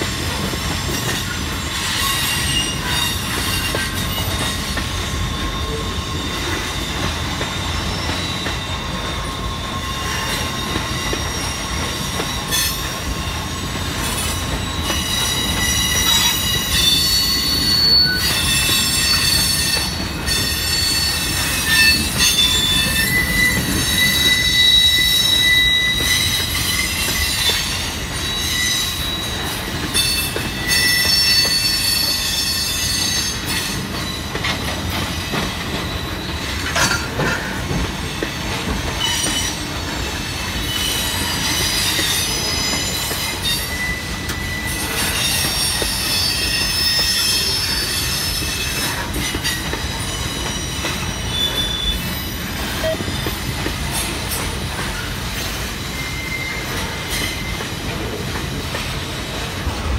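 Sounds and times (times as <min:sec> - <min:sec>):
train wheels rumbling on rail: 0:00.0 - 0:59.9
high-pitched wheel squeals: 0:00.8 - 0:37.6, 0:39.0 - 0:55.2, 0:55.8 - 0:57.7.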